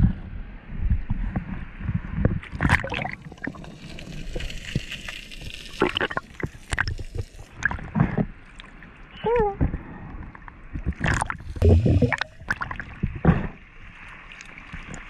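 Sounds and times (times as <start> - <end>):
sea water sloshing and splashing: 2.4 - 9.2, 10.2 - 15.0
underwater bubbling hiss: 11.1 - 12.6.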